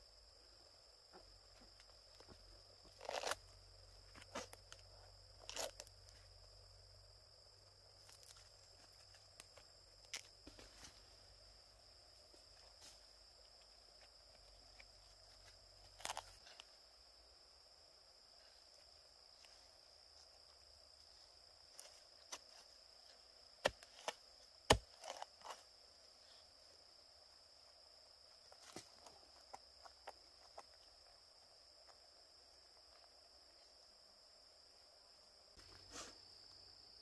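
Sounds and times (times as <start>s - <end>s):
fibre snapping and crackling: 3.0s - 3.4s.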